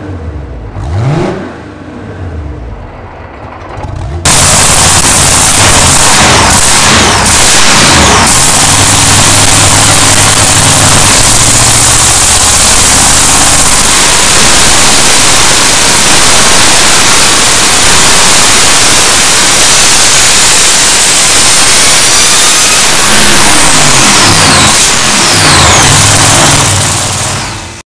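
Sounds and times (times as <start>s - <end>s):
racing engine running hard: 0.0s - 27.8s
rising whine: 1.5s - 27.8s.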